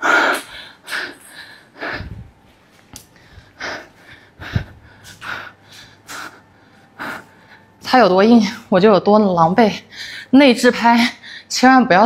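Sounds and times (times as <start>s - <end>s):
player's heavy breaths: 3.2s - 7.8s.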